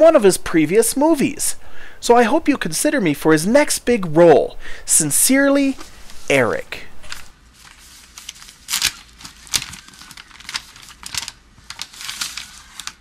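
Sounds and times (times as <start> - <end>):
envelope tearing and paper crinkling: 5.8 - 13.0.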